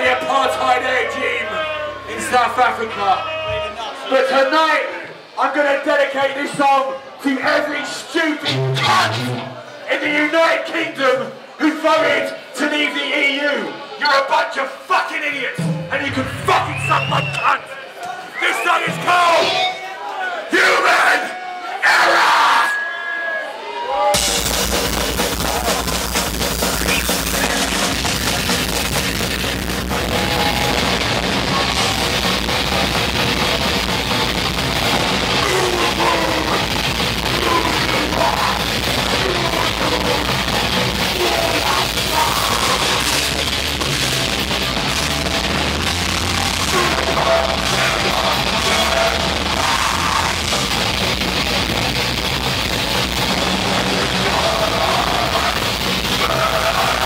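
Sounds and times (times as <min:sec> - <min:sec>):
punk band playing live: 0:15.6 - 0:17.6, 0:24.2 - 0:57.0.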